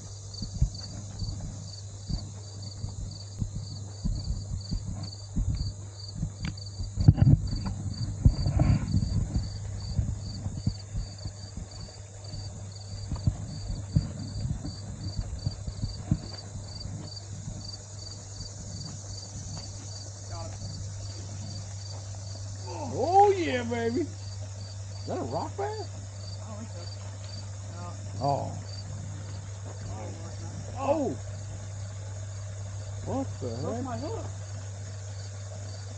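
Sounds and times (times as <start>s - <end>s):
footsteps on dirt path: 0.0s - 22.6s, 25.9s - 30.8s
insect chirping: 0.0s - 35.9s.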